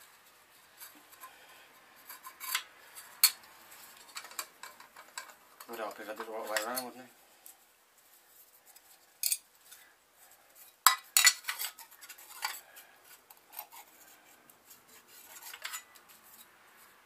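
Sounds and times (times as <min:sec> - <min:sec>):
metal plates clinking: 0:10.8 - 0:12.6.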